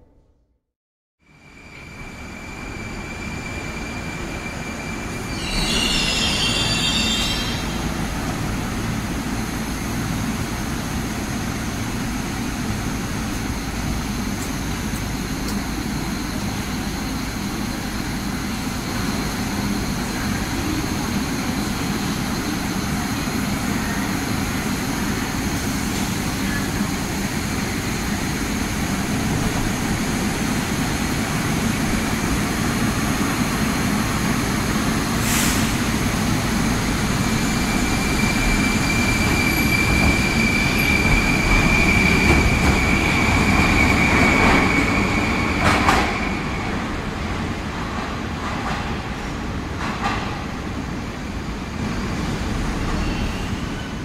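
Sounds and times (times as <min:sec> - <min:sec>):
rumble and hum of standing train: 0:01.2 - 0:54.0
train wheels and brakes squealing: 0:01.3 - 0:08.1, 0:34.1 - 0:47.0, 0:51.9 - 0:54.0.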